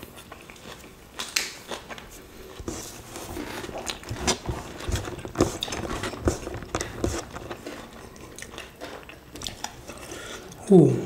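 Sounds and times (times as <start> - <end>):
mouth chewing: 3.6 - 10.7.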